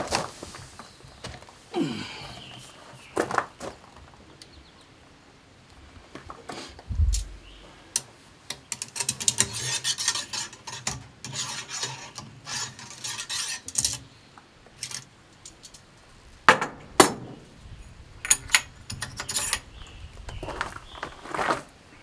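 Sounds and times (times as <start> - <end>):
metal scraping and clinking: 8.8 - 14.0, 18.2 - 19.7.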